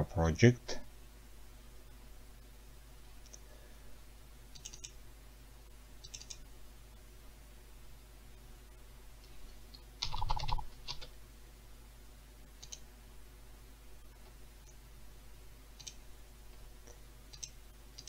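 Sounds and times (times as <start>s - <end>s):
mouse clicks: 3.2s - 3.4s, 4.6s - 5.0s, 6.0s - 6.4s, 9.2s - 11.1s, 12.6s - 12.8s, 17.3s - 18.0s.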